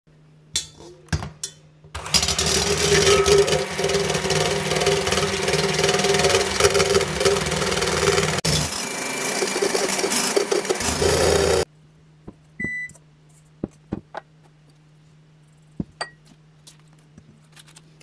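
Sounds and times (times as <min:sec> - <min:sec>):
electric hand mixer whirring: 0:02.0 - 0:11.7.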